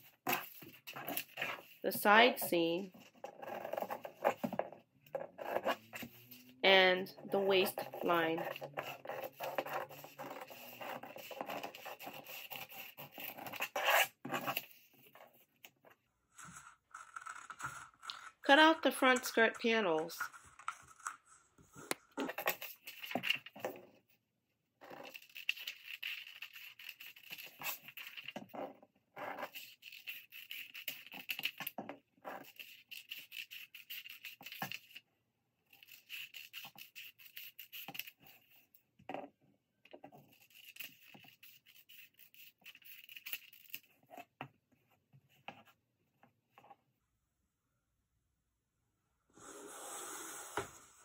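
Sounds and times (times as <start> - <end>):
scissors cutting paper: 0.0 - 6.5, 7.2 - 14.9, 16.4 - 21.3, 25.0 - 28.4, 29.2 - 35.0, 35.7 - 38.6, 40.2 - 44.0.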